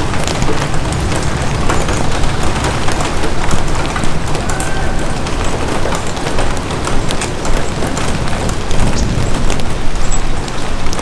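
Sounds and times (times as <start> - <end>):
rain pattering on an umbrella: 0.0 - 11.0.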